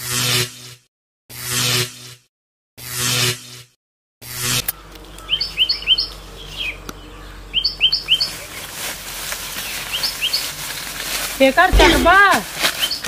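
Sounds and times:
bird chirping: 4.8s - 8.6s.

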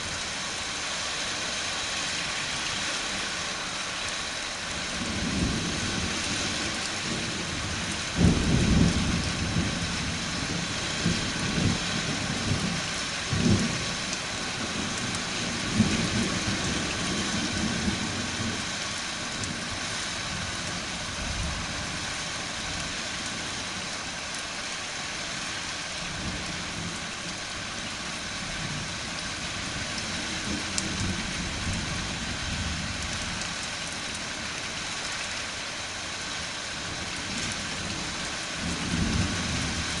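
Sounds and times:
steady rain: 0.0s - 40.0s
thunder rumbling: 5.0s - 18.6s.

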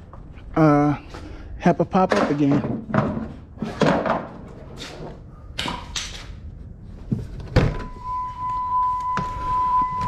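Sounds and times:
steady electronic tone: 7.8s - 10.0s.

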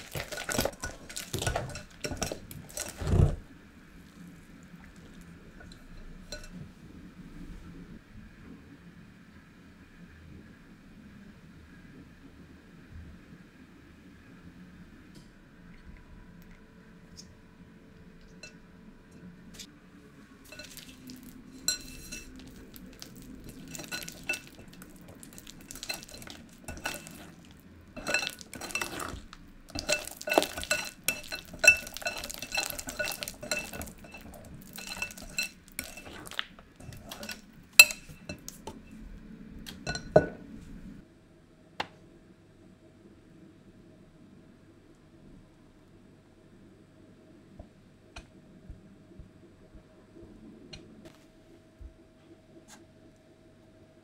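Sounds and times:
whisk clinking against glass bowl: 21.6s - 22.4s, 25.7s - 38.5s.

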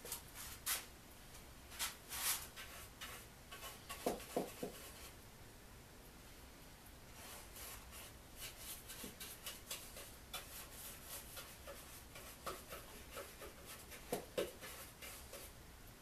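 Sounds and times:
paintbrush strokes on wood: 1.7s - 5.2s, 7.1s - 15.6s.

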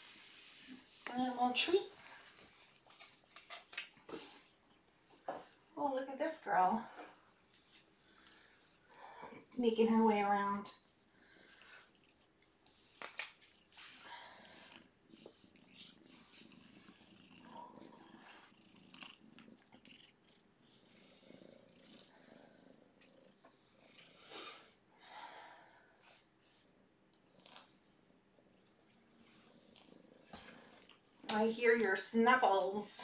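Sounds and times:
kittens snuffling and breathing: 4.0s - 5.8s, 6.8s - 9.6s, 10.7s - 31.2s.

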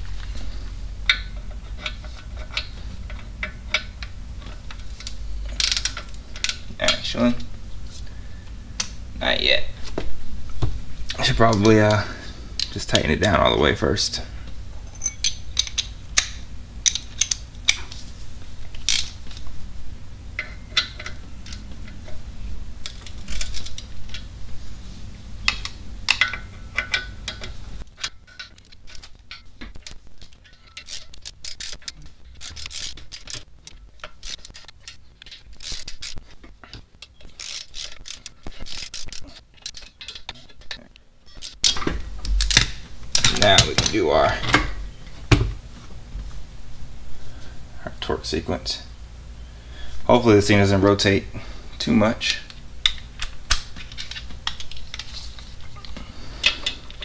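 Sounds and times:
hand ratchet clicking: 1.1s - 7.0s, 25.4s - 43.8s
low hum: 13.4s - 50.2s
metal clinks of tools: 14.8s - 15.9s.

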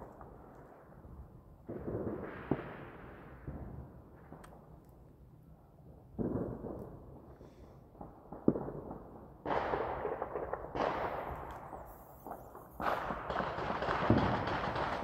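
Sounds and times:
sharp explosive crack: 12.8s - 15.0s.

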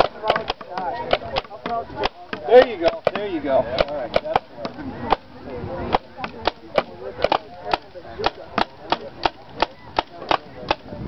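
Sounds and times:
paintball marker firing pops: 0.0s - 5.2s.

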